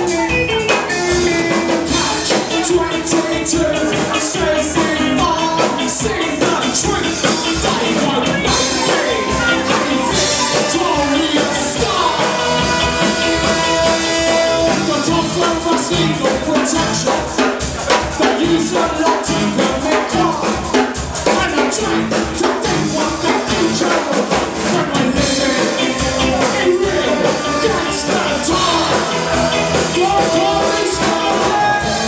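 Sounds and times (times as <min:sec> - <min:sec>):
person singing: 0:00.0 - 0:32.0
ska band playing: 0:00.0 - 0:32.0
horn section: 0:06.6 - 0:17.1, 0:24.7 - 0:32.0.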